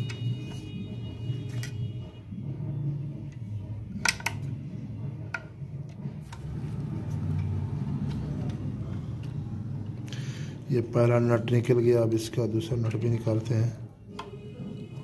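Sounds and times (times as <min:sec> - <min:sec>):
small metal clicks and taps: 0:04.0 - 0:04.5.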